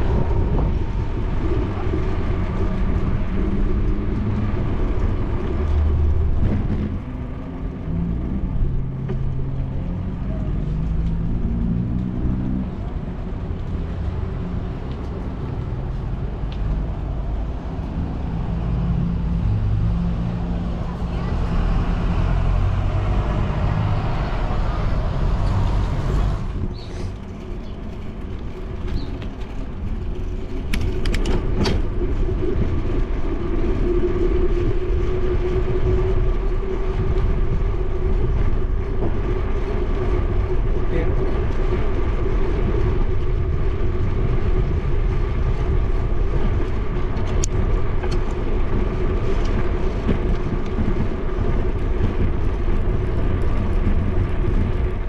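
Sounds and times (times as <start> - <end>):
bus passing close by: 0.0 - 33.2
bicycle rolling on pavement: 0.0 - 55.0
wind rumble: 0.0 - 55.0.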